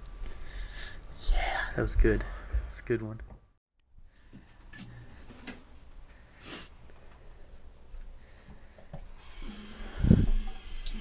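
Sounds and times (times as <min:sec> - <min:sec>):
water running into sink: 0:09.2 - 0:11.0.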